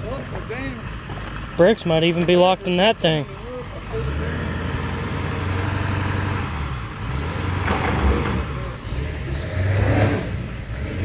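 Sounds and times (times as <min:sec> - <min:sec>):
truck engine under load: 0:00.0 - 0:11.0.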